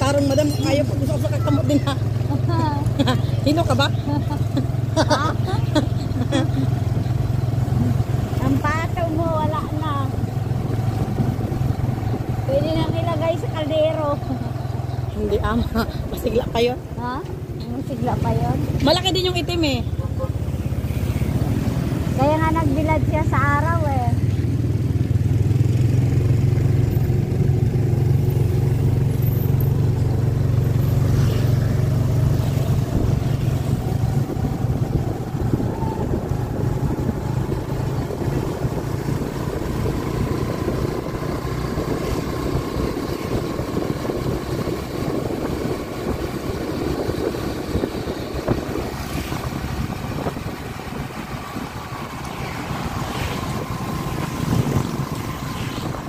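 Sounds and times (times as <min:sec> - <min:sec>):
motorcycle engine: 0:00.0 - 0:56.0
wind noise on microphone: 0:07.8 - 0:13.6, 0:31.9 - 0:56.0.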